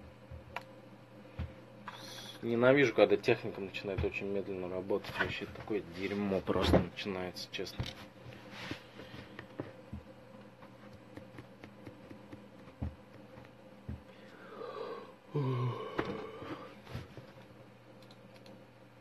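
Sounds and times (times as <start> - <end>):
faint steady hum: 0.0 - 19.0
man sighing: 14.4 - 16.7.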